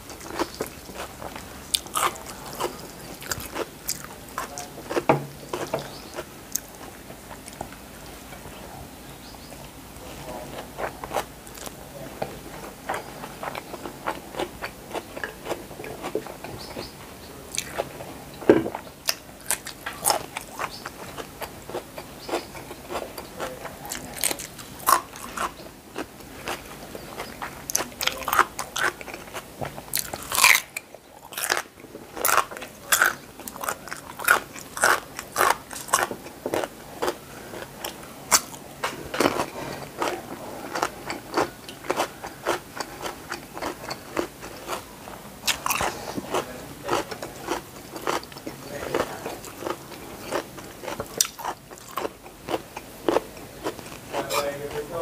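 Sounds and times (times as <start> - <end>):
wet chewing: 0.0 - 8.6, 10.2 - 55.0
crisp vegetable crunches: 19.0 - 54.9.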